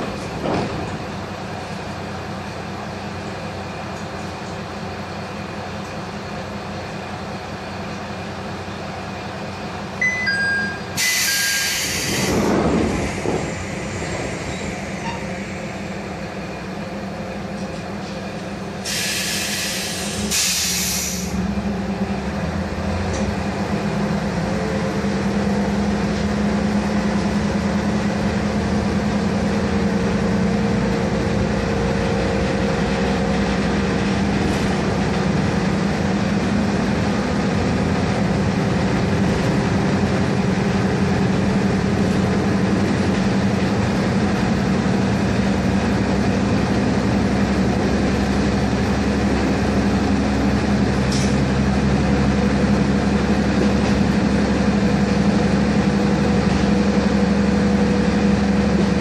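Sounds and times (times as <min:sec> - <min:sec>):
diesel engine drone: 0:00.0 - 0:59.0
compressed air hissing: 0:11.0 - 0:12.6, 0:18.8 - 0:21.4.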